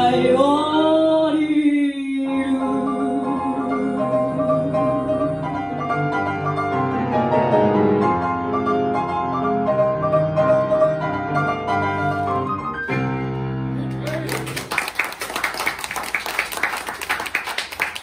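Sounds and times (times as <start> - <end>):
solo piano waltz: 4.0 - 14.0.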